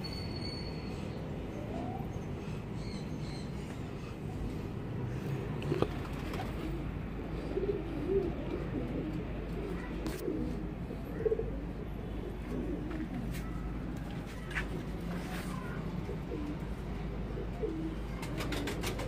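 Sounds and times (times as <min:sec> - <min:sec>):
pigeons cooing: 0:03.8 - 0:13.7, 0:15.6 - 0:19.0.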